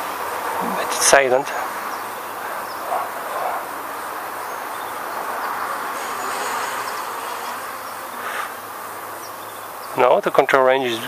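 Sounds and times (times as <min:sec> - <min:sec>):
small drone buzzing: 0:04.7 - 0:09.3.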